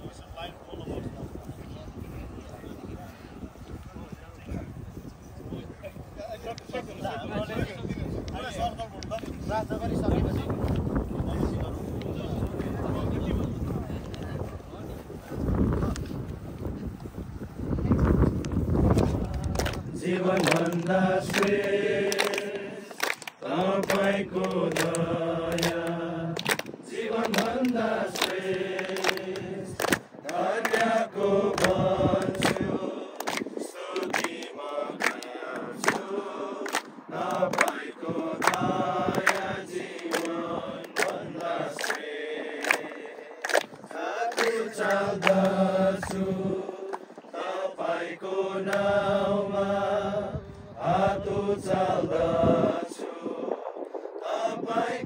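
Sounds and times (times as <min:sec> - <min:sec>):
hands clapping: 0:18.4 - 0:46.2, 0:46.9 - 0:47.1
men singing together: 0:19.0 - 0:53.6, 0:54.2 - 0:55.0.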